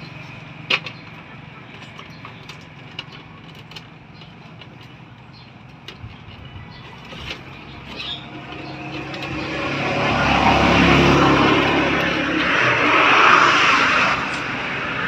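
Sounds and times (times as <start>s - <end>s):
rope rustling and clicking: 0.6s - 9.4s
low hum: 7.7s - 15.0s.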